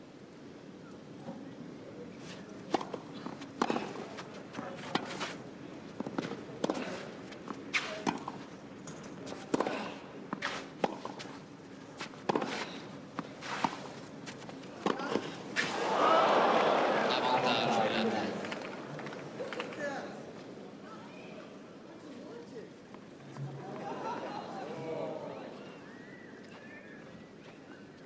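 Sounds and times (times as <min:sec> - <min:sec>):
racket hitting tennis ball: 0:12.0 - 0:14.0.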